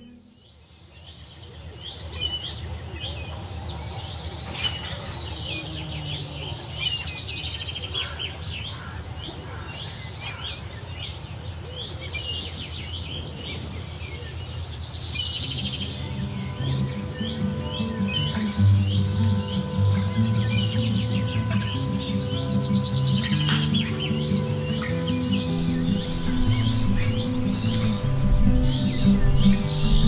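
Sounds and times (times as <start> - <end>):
birds chirping and trilling: 0.0 - 30.0
steady low rumble: 24.8 - 30.0.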